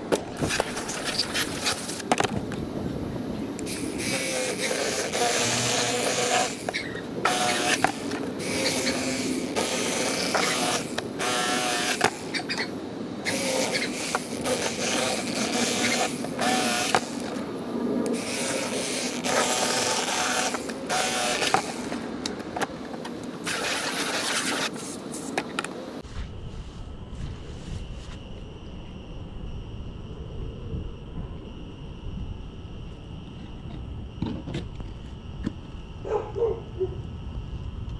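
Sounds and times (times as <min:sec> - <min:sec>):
garden hose spraying water: 0:03.6 - 0:12.6, 0:13.2 - 0:17.3, 0:18.1 - 0:21.9, 0:23.4 - 0:25.4
electric knife motor buzzing: 0:03.6 - 0:22.1, 0:22.8 - 0:25.4.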